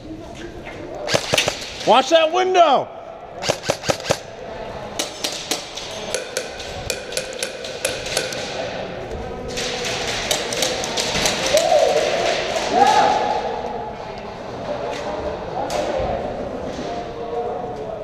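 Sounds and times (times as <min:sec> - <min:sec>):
airsoft gunshots snapping: 0:01.1 - 0:01.8, 0:03.4 - 0:04.2.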